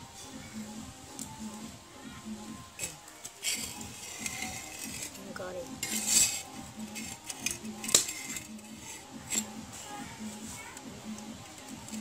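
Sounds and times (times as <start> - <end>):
metal utensil scraping cookware: 2.8 - 9.6.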